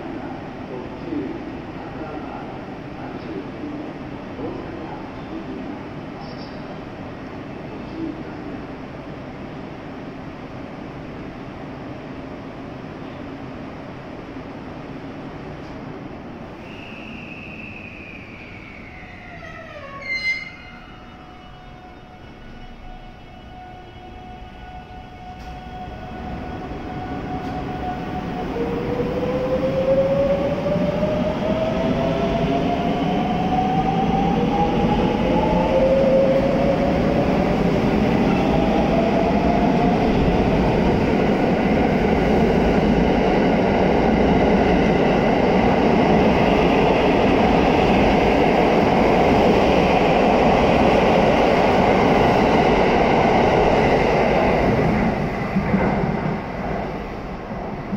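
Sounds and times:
wheels rumbling on rail: 0:25.3 - 0:57.9.

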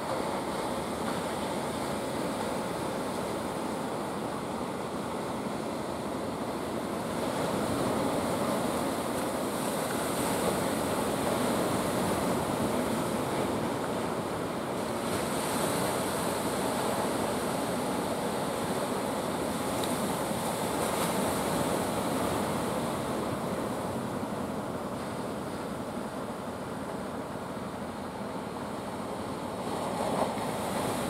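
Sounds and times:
ocean surf washing ashore: 0:00.0 - 0:31.0
waves breaking: 0:00.0 - 0:31.0.

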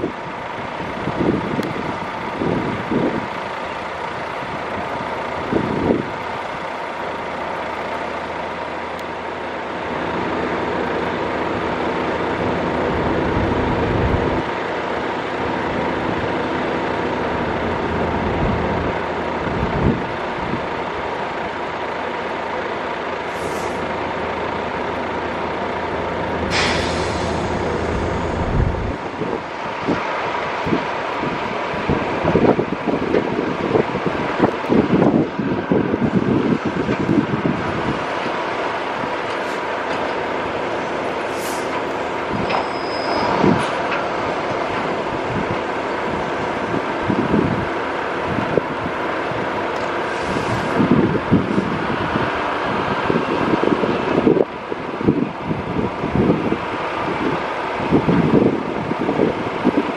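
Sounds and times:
distant jet engine roar: 0:22.8 - 0:54.4
wind thumps on microphone: 0:27.2 - 0:30.0.

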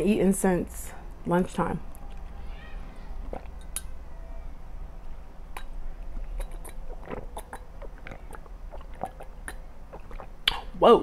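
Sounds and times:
person drinking water: 0:03.2 - 0:03.9, 0:05.5 - 0:10.8.

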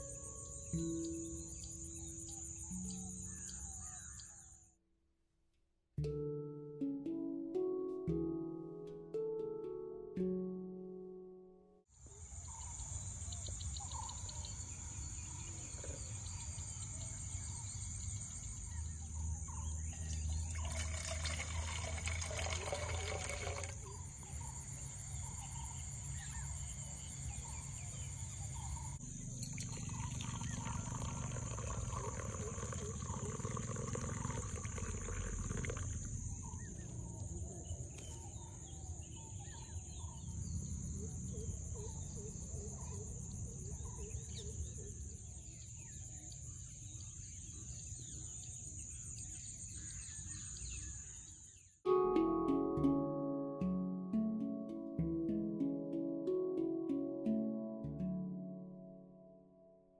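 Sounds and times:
insects droning: 0:12.0 - 0:51.3.

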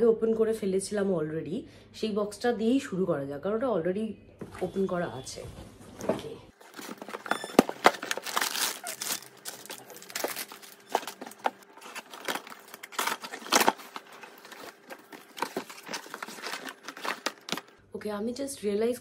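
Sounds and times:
paper and snack packets rustling: 0:06.6 - 0:17.8.

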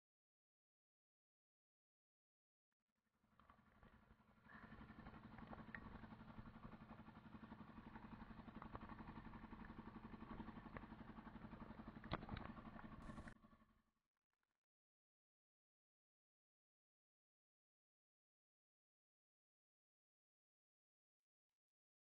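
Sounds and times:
boat engine running: 0:03.4 - 0:13.5.

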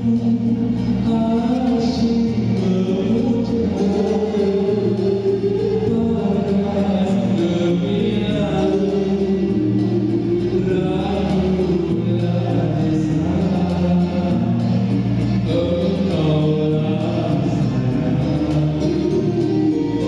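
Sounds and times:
backing music through loudspeakers: 0:00.0 - 0:20.0
man singing: 0:00.0 - 0:20.0.

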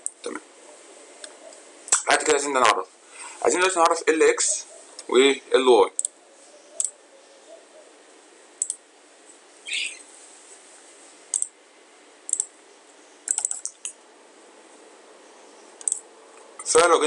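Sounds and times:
faint steady hiss: 0:00.0 - 0:17.0
computer clicks: 0:06.0 - 0:06.2, 0:08.6 - 0:08.8, 0:11.3 - 0:11.5, 0:12.3 - 0:12.6, 0:13.2 - 0:14.0, 0:15.8 - 0:16.0.

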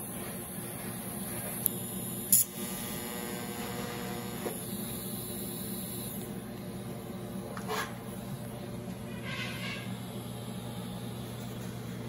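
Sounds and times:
welding hum and hiss: 0:00.0 - 0:12.0.

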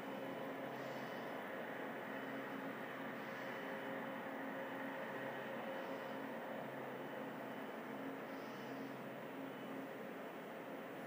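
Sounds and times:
hiss: 0:00.6 - 0:06.3, 0:08.0 - 0:09.4.

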